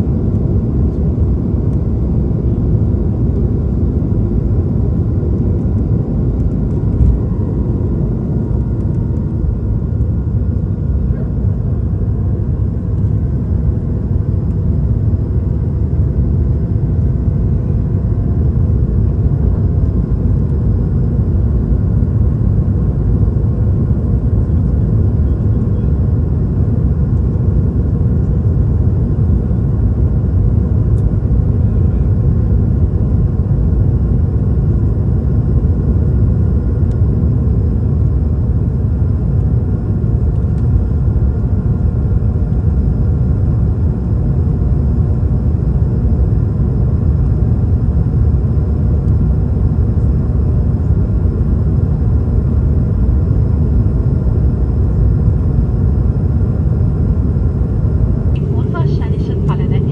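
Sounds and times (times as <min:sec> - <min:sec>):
airplane cabin rumble: 0:00.0 - 0:59.9
faint whine tones: 0:37.8 - 0:59.9.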